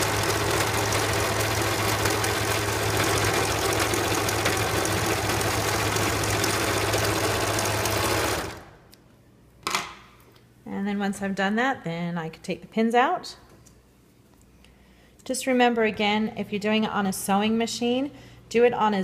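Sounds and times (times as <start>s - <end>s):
overlocker sewing machine running: 0.0s - 8.7s.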